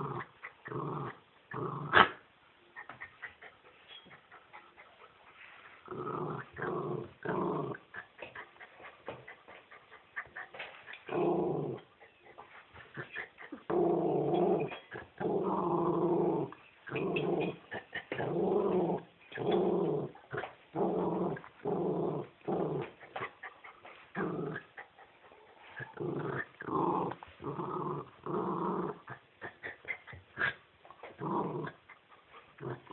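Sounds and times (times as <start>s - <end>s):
dog vocalizing: 29.0s - 30.6s.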